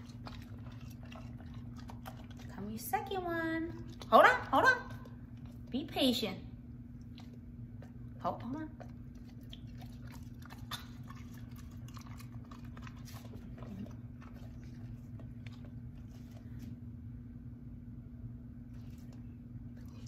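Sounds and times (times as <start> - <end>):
dog chewing wetly: 0.0 - 17.0, 18.6 - 20.0
low steady hum: 0.0 - 20.0.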